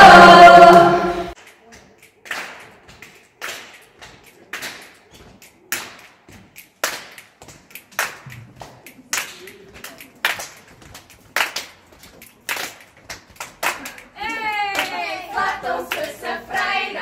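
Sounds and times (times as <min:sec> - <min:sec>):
group singing a cappella: 0:00.0 - 0:01.4, 0:14.8 - 0:17.0
hands clapping a slow beat: 0:01.3 - 0:17.0.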